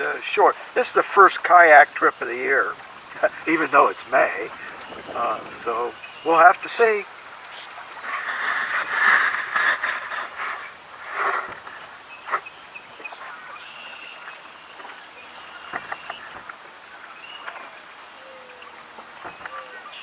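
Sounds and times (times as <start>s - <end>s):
water lapping: 0.0s - 19.9s
paddle splashing in water: 7.8s - 17.8s.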